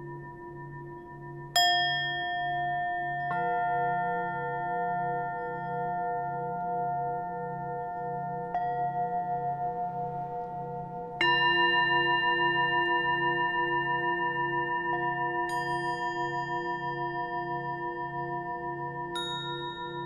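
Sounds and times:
ringing bell-like tones: 11.2s - 20.0s.

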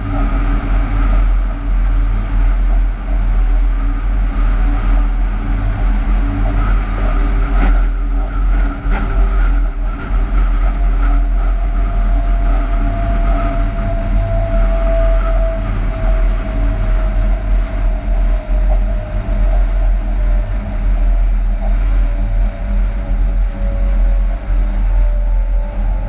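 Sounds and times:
locomotive low hum: 0.0s - 26.0s.

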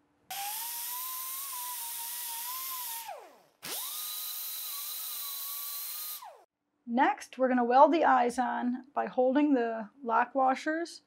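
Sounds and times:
air die grinder whining: 0.3s - 6.5s.

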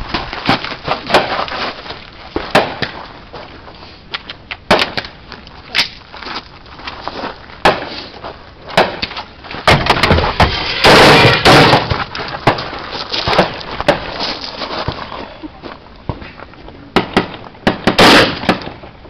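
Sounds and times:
rifle shots: 17.0s - 18.8s.

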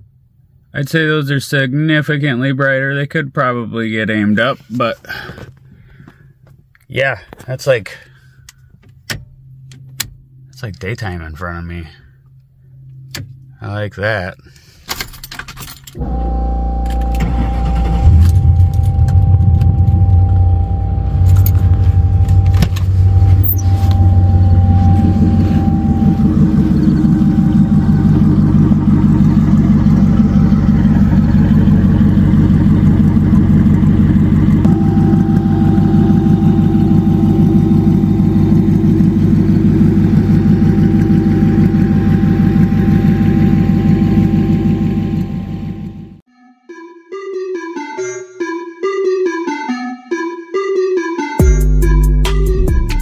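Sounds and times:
car engine idling: 16.0s - 46.2s.

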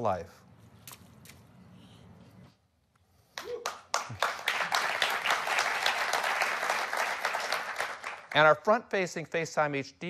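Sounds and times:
audience applause: 3.4s - 8.6s.

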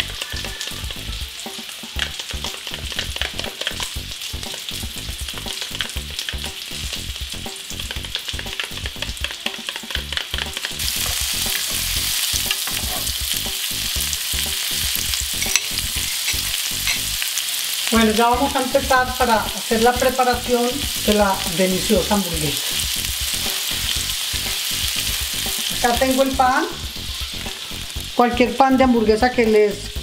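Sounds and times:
food sizzling on grill pan: 0.0s - 30.0s
spoon scraping glass bowl: 15.4s - 17.0s.

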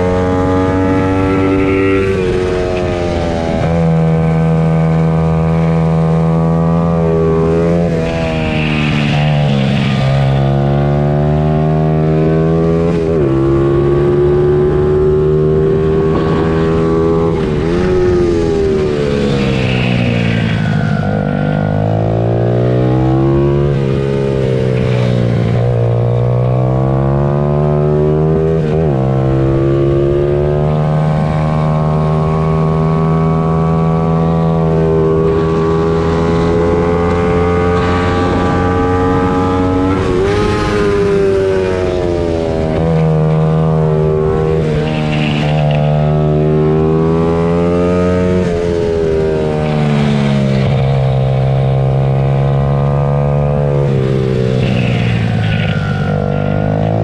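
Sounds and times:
pit bike engines racing: 0.0s - 57.0s.

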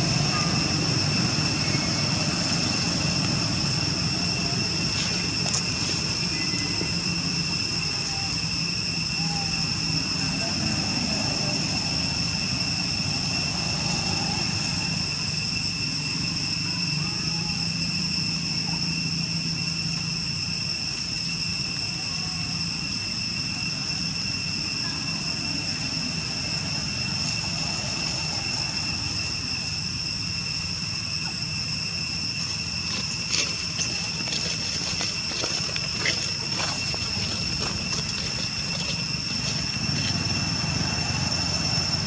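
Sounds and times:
high-pitched insect drone: 0.0s - 42.0s.

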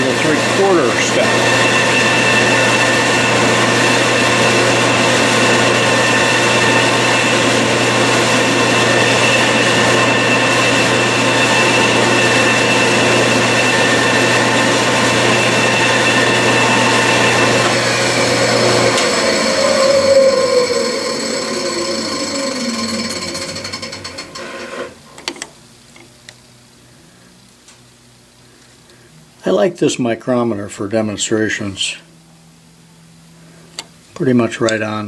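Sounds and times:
milling machine spindle hum and whine: 0.0s - 25.4s.

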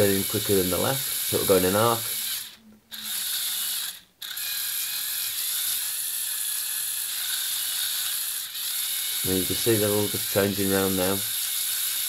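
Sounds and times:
toy electric motors running: 0.0s - 12.0s.

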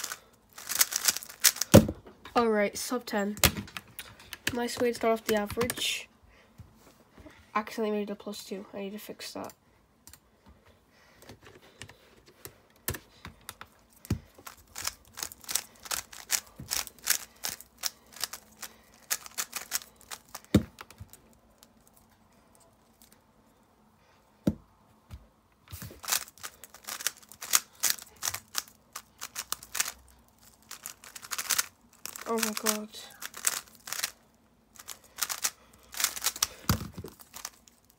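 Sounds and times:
speed cube layers clicking: 0.0s - 1.7s, 14.4s - 21.1s, 26.0s - 34.2s, 34.8s - 37.8s.

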